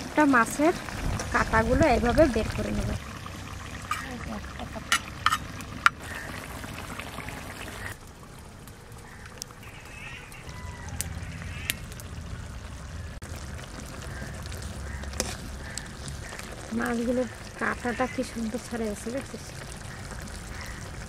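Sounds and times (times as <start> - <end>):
faint bird calls: 6.0 - 8.0, 9.0 - 13.2, 13.9 - 18.4, 19.8 - 21.0.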